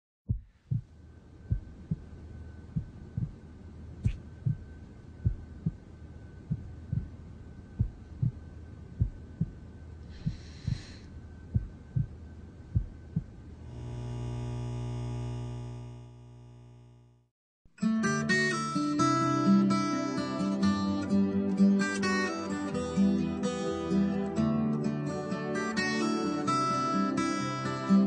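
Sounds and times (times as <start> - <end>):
heartbeat thumps: 0.3 - 3.4, 4.0 - 13.5.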